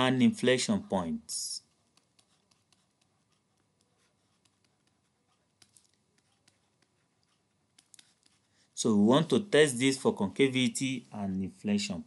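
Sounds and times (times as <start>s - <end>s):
stylus tapping on pen tablet: 1.8s - 8.4s.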